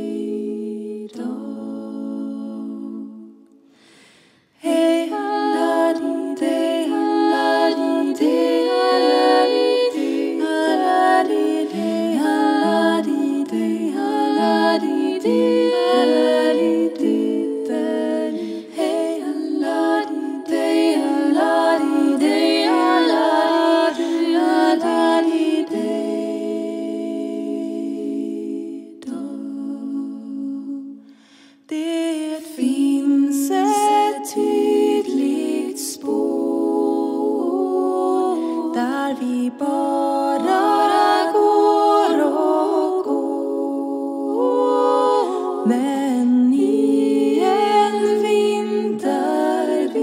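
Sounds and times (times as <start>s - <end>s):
women singing a cappella: 0.0s - 50.0s.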